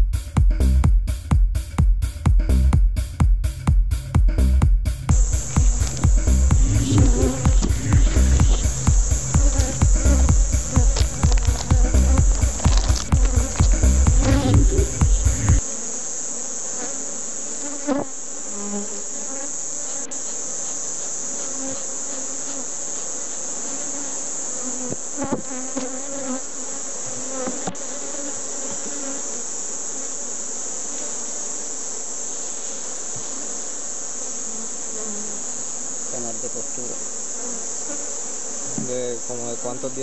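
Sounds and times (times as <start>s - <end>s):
loud low rumble: 5.1s - 15.6s
wooden frames knocking: 5.1s - 15.6s
honeybees buzzing: 5.1s - 40.0s.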